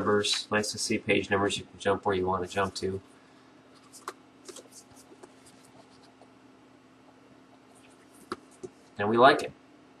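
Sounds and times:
steady low hum: 0:00.0 - 0:10.0
book being handled: 0:03.8 - 0:06.3, 0:07.7 - 0:08.9.

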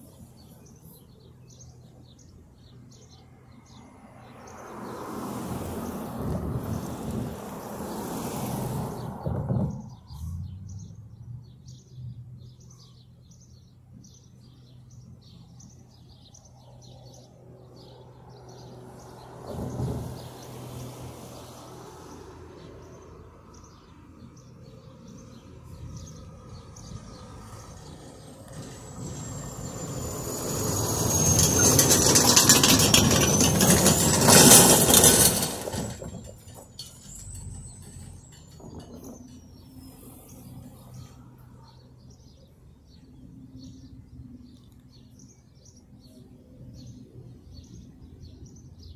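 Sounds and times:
small birds chirping: 0:00.0 - 0:05.0, 0:09.0 - 0:20.9, 0:22.0 - 0:29.8, 0:35.0 - 0:48.9.

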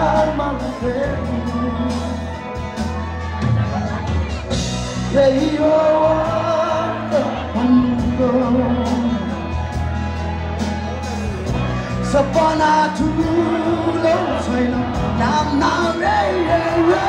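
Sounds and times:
man singing into microphone: 0:00.0 - 0:02.7, 0:04.9 - 0:09.6, 0:11.9 - 0:17.0
amplified pop backing music: 0:00.0 - 0:17.0.

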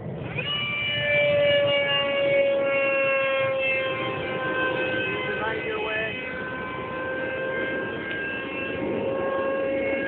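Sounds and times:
model airplane motor whining: 0:00.0 - 0:10.0.

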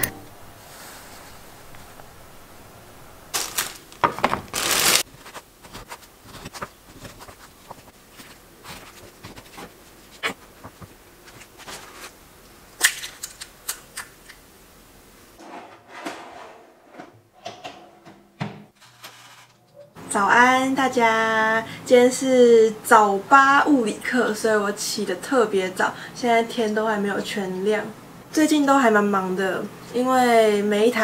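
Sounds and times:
rustling: 0:00.6 - 0:12.2.

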